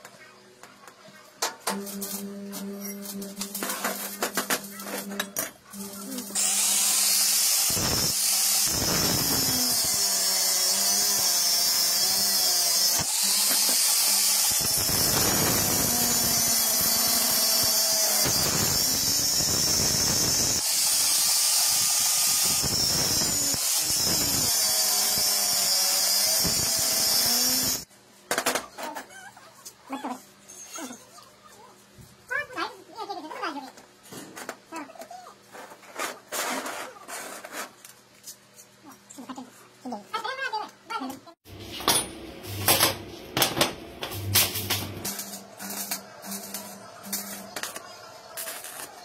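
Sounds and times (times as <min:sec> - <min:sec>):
angle grinder cutting steel: 0:01.7 - 0:27.9, 0:44.0 - 0:49.0.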